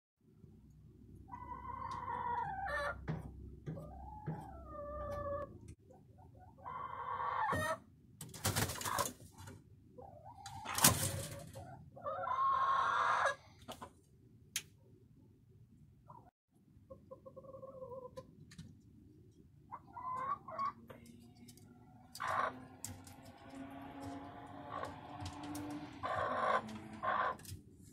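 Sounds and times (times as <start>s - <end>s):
hens clucking: 1.2s - 7.8s, 8.5s - 14.0s, 16.9s - 18.4s, 19.7s - 27.6s
wings flapping: 8.2s - 9.3s, 10.6s - 11.5s.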